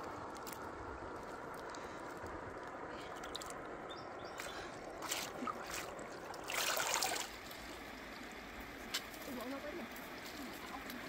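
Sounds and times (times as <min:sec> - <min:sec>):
stream trickling: 0:00.0 - 0:11.0
water gushing from basket: 0:04.9 - 0:08.0.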